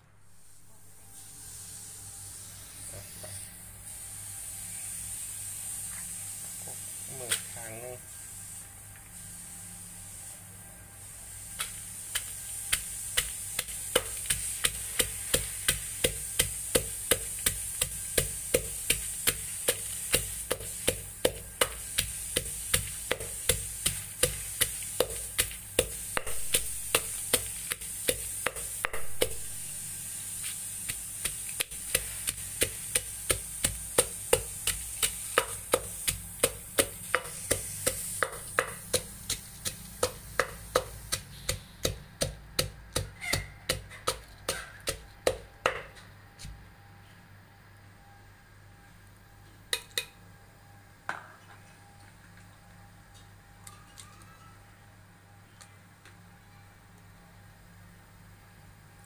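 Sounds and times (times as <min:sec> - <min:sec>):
steady high hiss: 0:00.0 - 0:46.6
wooden pestle pounding in mortar: 0:12.1 - 0:29.8, 0:30.8 - 0:46.0.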